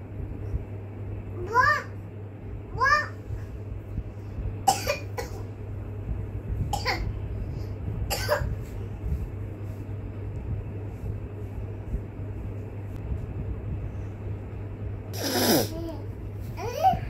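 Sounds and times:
steady low hum: 0:00.0 - 0:17.0
person coughing: 0:04.7 - 0:05.4, 0:08.1 - 0:08.5, 0:15.2 - 0:15.8.

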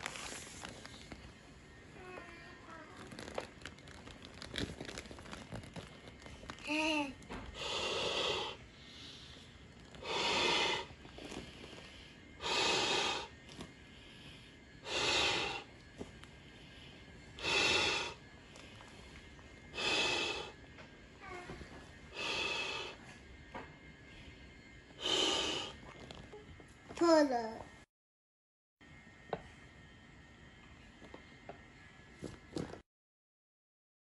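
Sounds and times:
air hissing into inflatable pool: 0:00.0 - 0:00.7, 0:12.1 - 0:13.4, 0:14.8 - 0:15.7, 0:17.4 - 0:18.2, 0:25.0 - 0:25.8.

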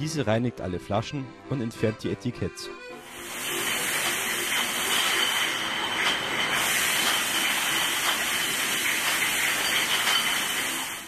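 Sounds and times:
washing machine hiss and whine: 0:03.0 - 0:11.0
glass bottles clinking: 0:03.2 - 0:11.0.

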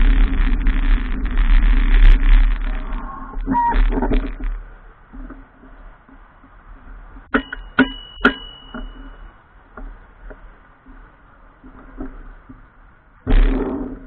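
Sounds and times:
bicycle rattling over bumps: 0:00.0 - 0:14.0
sharp metallic knocks: 0:07.2 - 0:09.3
ringing metallic ping: 0:07.3 - 0:09.3.

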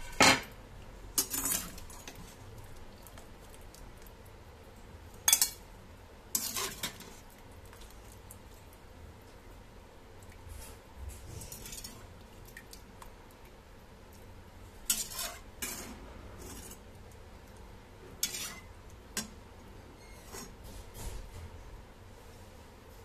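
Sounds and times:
steel skimmer scraping in a pan: 0:01.2 - 0:02.5, 0:06.3 - 0:07.2, 0:10.5 - 0:12.1, 0:14.8 - 0:16.9, 0:18.0 - 0:19.3, 0:20.0 - 0:21.1.

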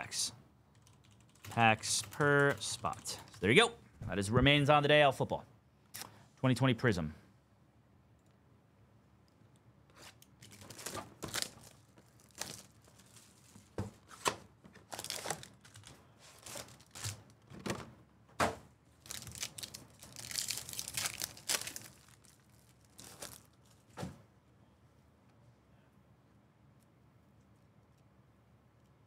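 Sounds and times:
plastic wrapping tearing and crinkling: 0:10.0 - 0:13.8, 0:14.8 - 0:17.4, 0:19.0 - 0:23.8.

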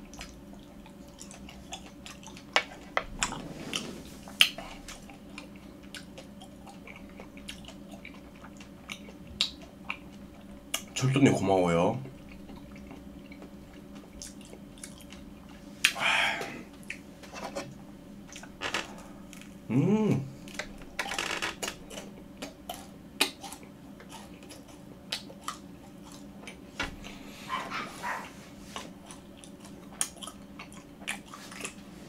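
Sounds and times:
chewing with mouth clicks: 0:00.0 - 0:03.4, 0:04.3 - 0:11.0, 0:12.0 - 0:16.0, 0:21.7 - 0:31.9
person humming: 0:15.9 - 0:16.7, 0:19.7 - 0:20.4.

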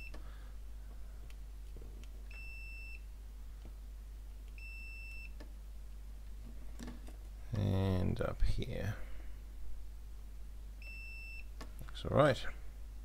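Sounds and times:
continuity tester beeping: 0:02.3 - 0:03.1, 0:04.5 - 0:05.4, 0:10.8 - 0:11.5.

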